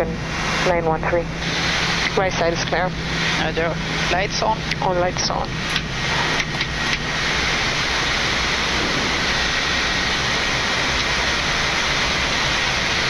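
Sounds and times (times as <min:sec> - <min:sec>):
jet engines rushing: 0:00.0 - 0:13.0
air rushing past: 0:05.6 - 0:13.0.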